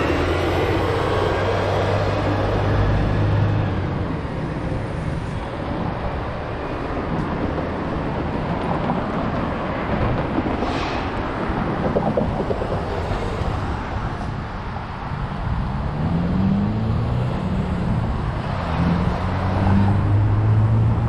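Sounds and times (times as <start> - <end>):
street traffic: 0.0 - 21.0.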